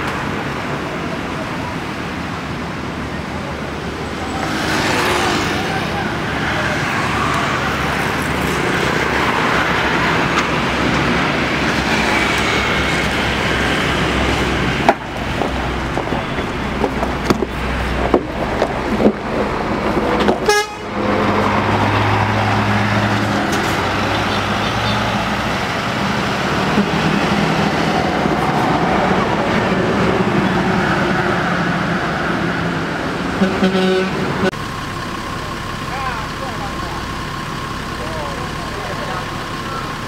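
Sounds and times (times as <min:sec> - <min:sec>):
diesel coach engine pulling away: 0:00.0 - 0:33.4, 0:34.0 - 0:40.0
coach horn toots: 0:20.4 - 0:21.0, 0:33.4 - 0:34.6.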